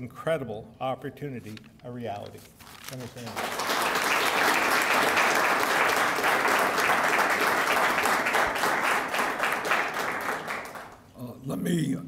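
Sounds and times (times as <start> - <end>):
audience applauding: 3.1 - 11.1.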